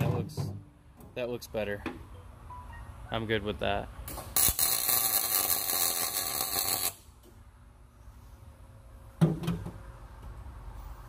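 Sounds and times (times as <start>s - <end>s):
arc welder crackling: 4.0s - 7.3s.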